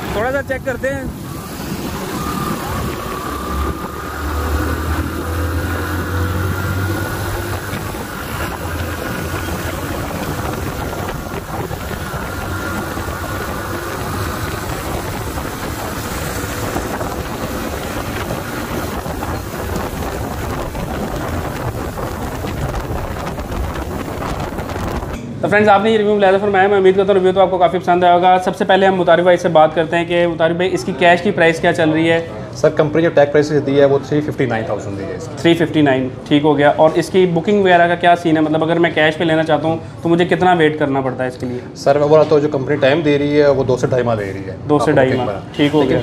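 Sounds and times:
wind and road noise: 0.0 - 25.4
motorcycle engine accelerating: 1.2 - 25.2.

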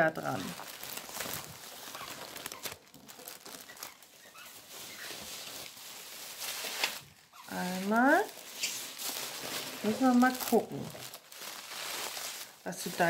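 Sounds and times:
cellophane crinkling: 0.0 - 13.0.

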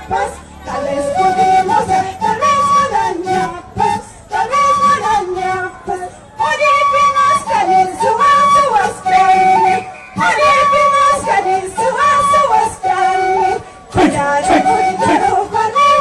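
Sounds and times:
folk music with high singing: 0.0 - 16.0.

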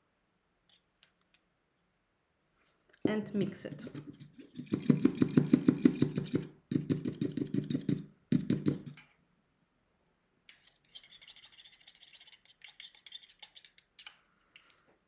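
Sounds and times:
spatula scraping metal cup: 3.7 - 6.5, 7.1 - 8.0, 10.5 - 14.8.

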